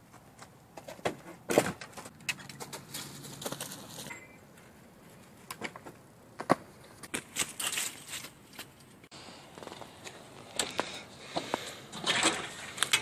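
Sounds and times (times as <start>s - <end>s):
footsteps on wood chips and leaves: 7.0s - 8.8s.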